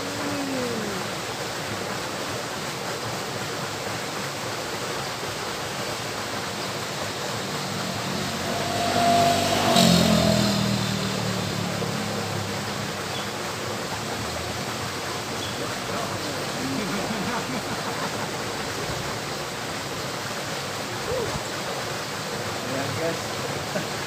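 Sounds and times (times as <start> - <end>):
river water flowing: 0.0 - 24.0
vehicle passing on road: 6.8 - 19.2.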